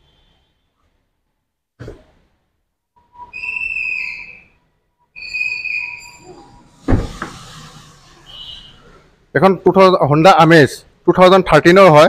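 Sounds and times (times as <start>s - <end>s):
high whistle-like tone: 3.0s - 6.8s.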